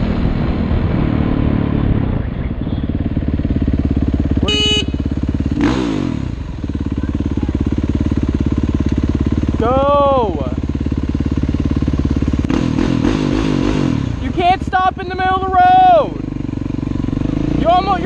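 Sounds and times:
dirt bike engine idling: 2.3 - 18.0
horn honk: 4.4 - 5.7.

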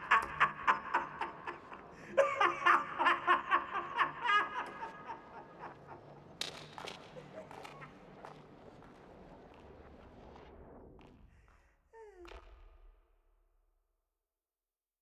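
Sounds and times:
man laughing: 0.0 - 6.3, 7.0 - 8.2.

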